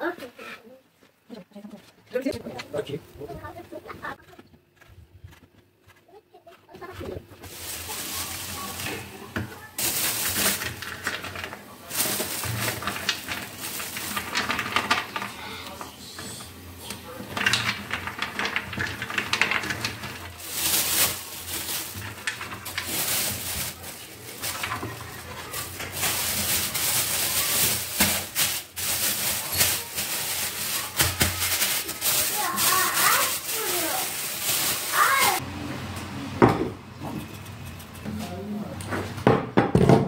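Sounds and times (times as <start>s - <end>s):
plastic bags rustling: 7.2s - 35.4s
frozen dumplings rattling on tray: 7.5s - 15.9s, 17.0s - 35.4s.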